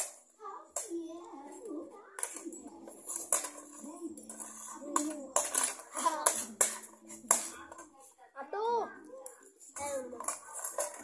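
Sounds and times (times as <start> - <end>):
children's voices: 0.4 - 2.9, 3.7 - 6.9
metal spoons clinking on plates: 2.2 - 7.9, 9.7 - 11.0.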